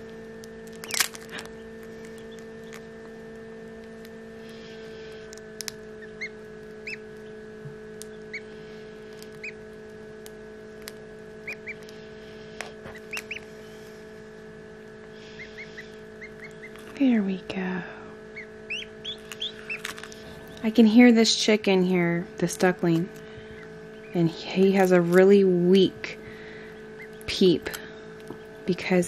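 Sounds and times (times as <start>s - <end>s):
steady hum: 0.0s - 29.0s
duckling peeping: 0.6s - 10.0s, 10.8s - 13.8s, 15.2s - 17.0s, 18.3s - 20.8s, 22.2s - 28.7s.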